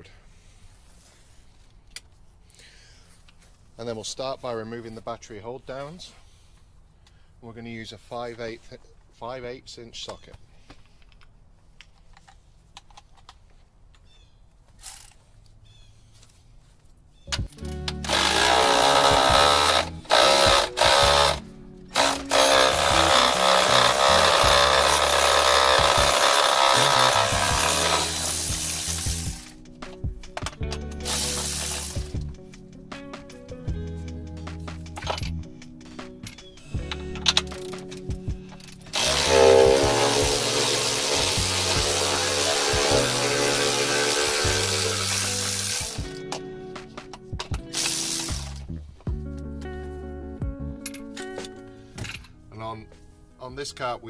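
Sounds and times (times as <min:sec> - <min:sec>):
background music: 0:17.3 - 0:54.0
cordless ratchet running: 0:17.5 - 0:21.4, 0:22.0 - 0:29.5, 0:31.0 - 0:32.2, 0:38.6 - 0:46.2, 0:47.8 - 0:48.6
power tool spinning socket: 0:17.5 - 0:21.4, 0:22.0 - 0:29.6, 0:30.9 - 0:32.2, 0:38.6 - 0:46.2, 0:47.7 - 0:48.6.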